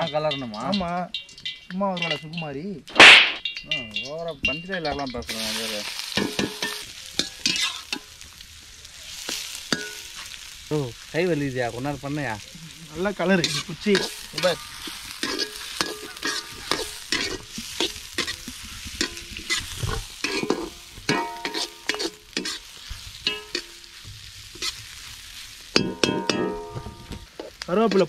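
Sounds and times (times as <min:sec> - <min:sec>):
onions sizzling in oil: 0:00.0 - 0:28.0
spoon scraping a pot: 0:06.2 - 0:08.0, 0:13.4 - 0:22.6.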